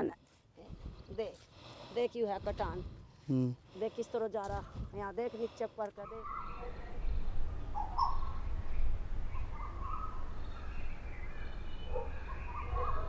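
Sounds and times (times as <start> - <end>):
wind rumble on microphone: 0.6 - 1.3, 2.3 - 3.2, 4.5 - 5.1, 6.2 - 13.0
birds calling: 6.0 - 13.0.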